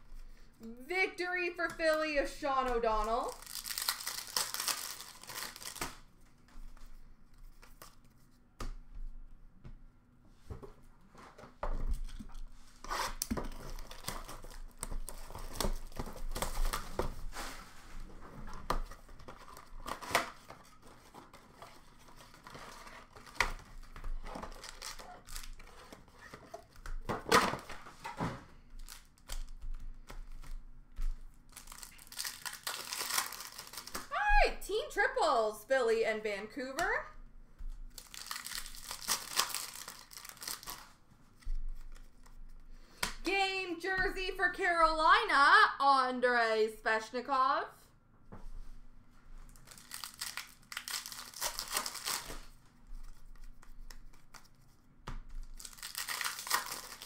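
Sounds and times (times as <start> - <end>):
foil wrappers tearing: 3.0 - 6.0, 12.9 - 17.5, 21.4 - 26.1, 31.5 - 34.1, 37.9 - 40.9, 49.5 - 52.5, 55.5 - 57.0
cards and boxes handled: 10.4 - 34.1.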